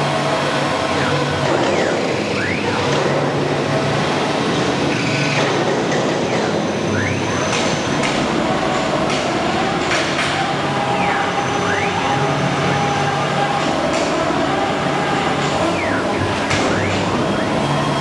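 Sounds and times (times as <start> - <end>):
drive motors whining: 0.0 - 5.4, 6.3 - 18.0
wood router machine noise: 6.5 - 18.0.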